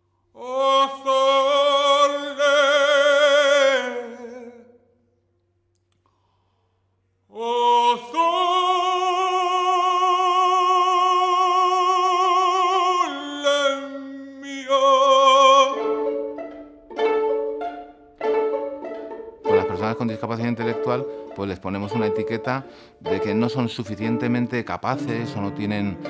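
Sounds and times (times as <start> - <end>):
man singing operatically: 0.4 - 4.8, 7.3 - 16.3, 19.4 - 26.0
pizzicato violins: 8.4 - 26.0.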